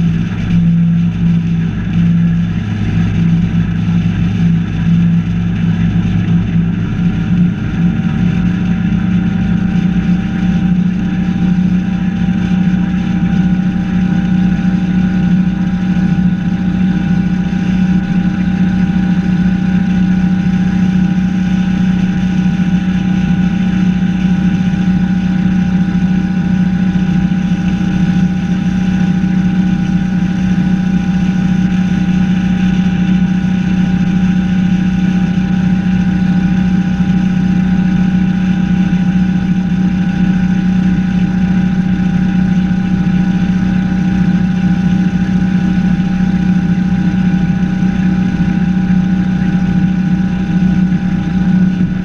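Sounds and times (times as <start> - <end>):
boat engine droning: 0.0 - 52.0
water and wind rushing: 0.0 - 52.0.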